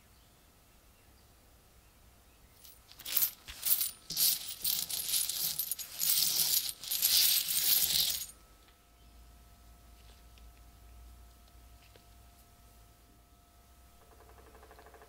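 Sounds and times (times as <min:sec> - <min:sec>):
metal coins clinking: 0:02.6 - 0:08.3.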